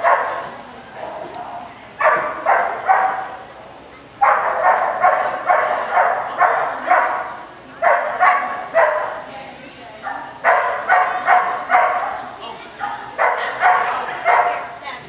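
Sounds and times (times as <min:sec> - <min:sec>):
dog barking with echo: 0:00.0 - 0:00.5, 0:02.0 - 0:03.4, 0:04.2 - 0:09.2, 0:10.1 - 0:12.2, 0:12.8 - 0:14.8.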